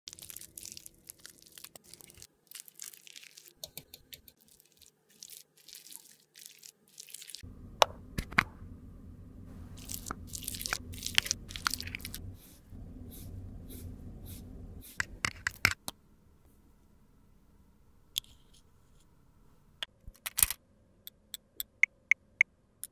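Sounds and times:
steady low hum: 0:07.4 - 0:21.8.

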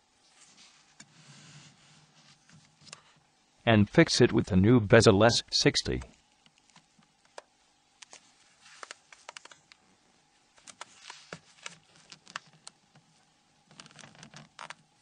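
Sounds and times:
small plastic clicks and rubbing: 0:06.4 - 0:09.8, 0:13.7 - 0:14.9.

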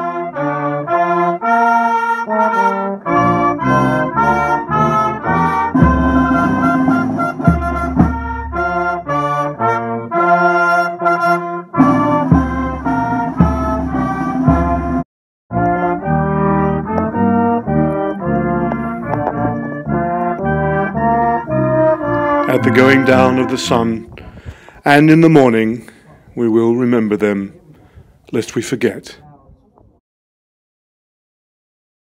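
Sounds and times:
brass band playing: 0:00.0 - 0:24.3.

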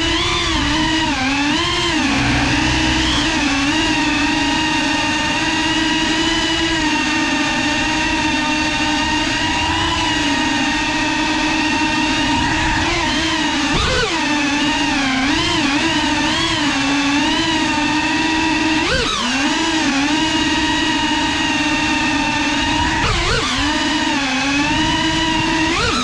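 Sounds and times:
drone motors whining: 0:00.0 - 0:26.0.

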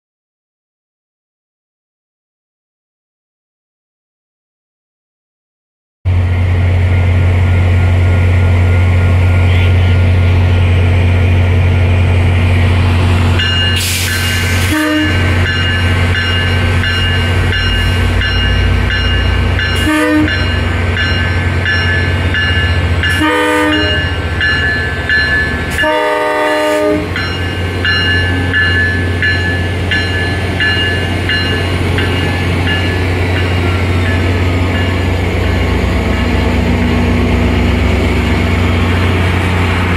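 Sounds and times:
diesel locomotive engine rumbling: 0:06.1 - 0:39.9
locomotive horn blasts: 0:14.6 - 0:15.4, 0:19.7 - 0:20.6, 0:23.0 - 0:24.2, 0:25.7 - 0:27.2.

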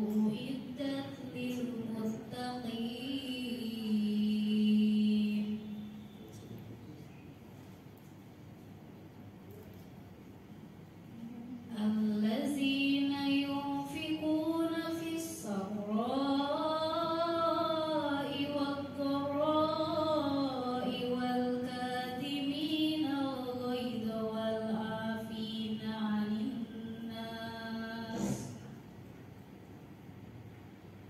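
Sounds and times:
woman reciting melodically: 0:00.0 - 0:06.0, 0:11.2 - 0:28.9.

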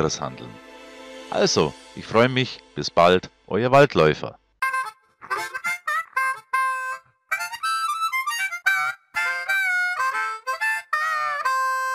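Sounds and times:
harmonica playing: 0:04.6 - 0:11.9.

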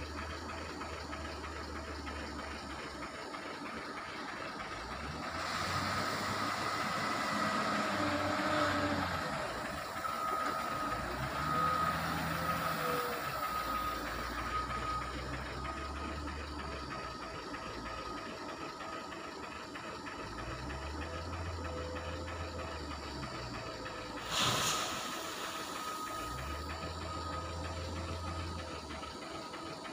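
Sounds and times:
loader diesel engine working hard: 0:00.0 - 0:29.9
short high alarm beeps: 0:24.4 - 0:28.5.

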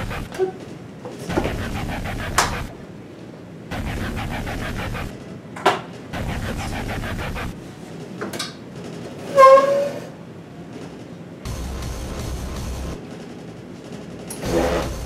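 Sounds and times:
chair casters rolling on hard floor: 0:07.8 - 0:11.1, 0:13.1 - 0:15.0
short high squeal: 0:09.3 - 0:10.1.

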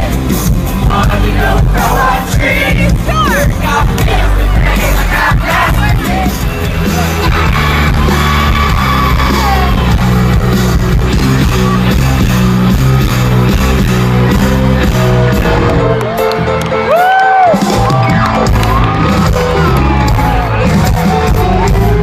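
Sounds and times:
live rock band playing: 0:00.0 - 0:22.0.

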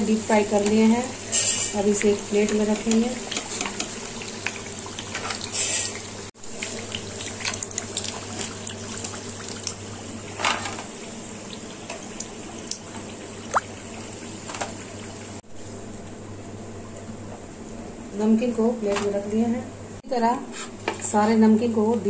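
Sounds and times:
hot oil sizzling and crackling: 0:00.0 - 0:15.6.

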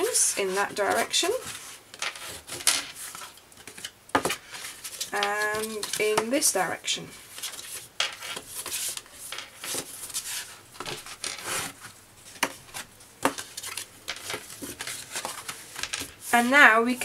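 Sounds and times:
paper rustling: 0:00.0 - 0:06.3, 0:07.2 - 0:17.0
bone folder scraping paper: 0:07.3 - 0:16.6.

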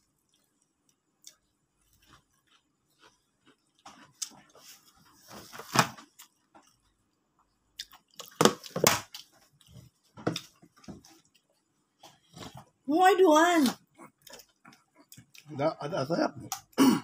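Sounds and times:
chewing and mouth smacks: 0:00.0 - 0:04.8, 0:06.0 - 0:11.7, 0:13.8 - 0:15.5.

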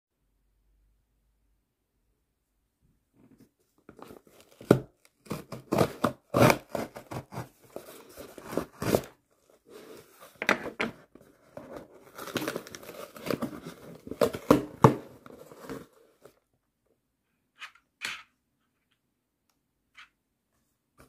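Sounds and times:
cardboard and tape tearing: 0:04.0 - 0:10.3, 0:11.6 - 0:16.3.

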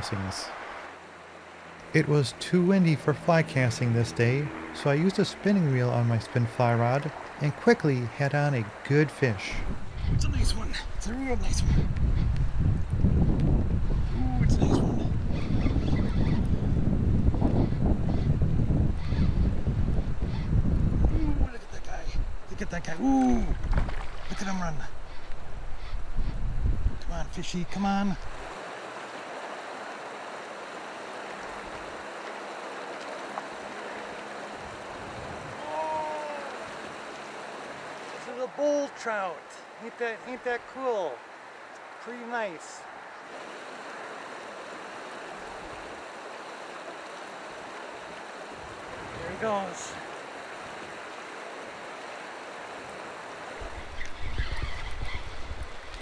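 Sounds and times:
river flowing over gravel: 0:00.0 - 0:11.5, 0:27.4 - 0:56.0
wind buffeting microphone: 0:09.5 - 0:28.6, 0:53.4 - 0:56.0.

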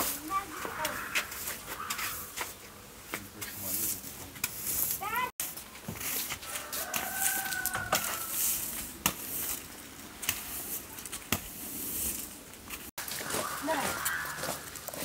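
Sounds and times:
broom sweeping stone tiles: 0:00.0 - 0:15.0
rooster crowing: 0:06.4 - 0:08.5.

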